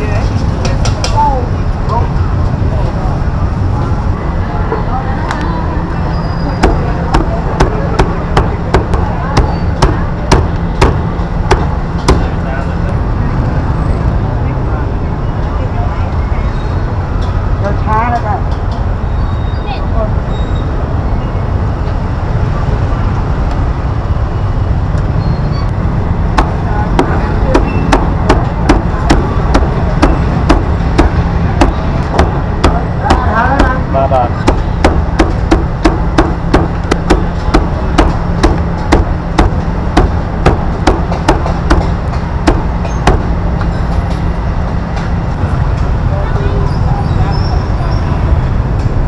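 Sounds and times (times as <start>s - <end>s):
street market bustle: 0.0s - 49.0s.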